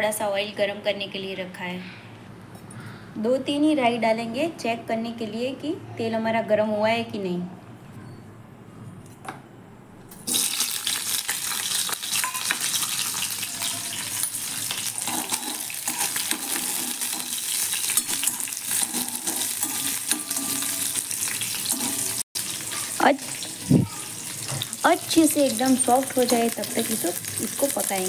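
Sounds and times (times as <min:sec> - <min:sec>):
chillies sizzling in hot oil: 0:10.3 - 0:28.0
metal spoon scraping a pan: 0:12.0 - 0:22.2.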